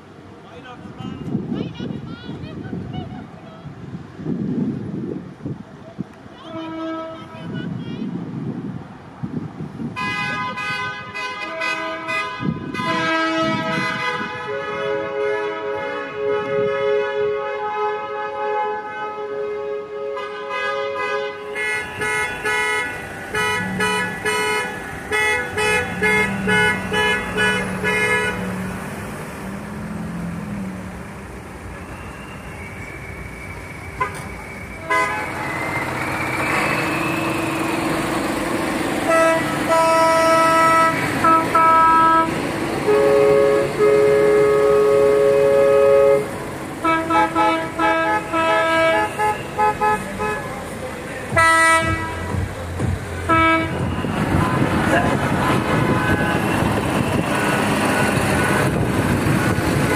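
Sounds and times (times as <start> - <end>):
traffic: 0.0 - 59.9
car horns honking: 9.9 - 29.5, 31.8 - 38.1, 39.0 - 59.9.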